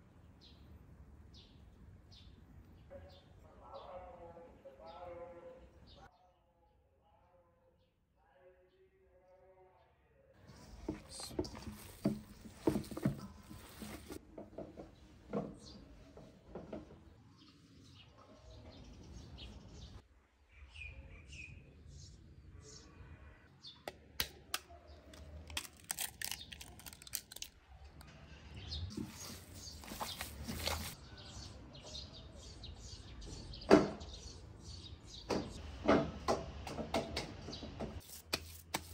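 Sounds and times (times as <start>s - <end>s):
small birds chirping: 0.2s - 6.1s, 10.4s - 23.0s, 24.6s - 35.7s.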